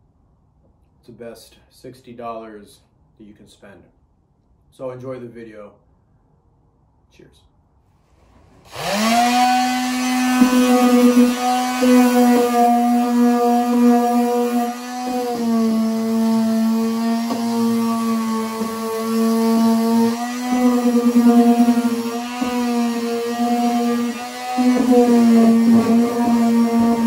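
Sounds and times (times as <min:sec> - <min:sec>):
random orbital sander whining: 0:08.2 - 0:27.0.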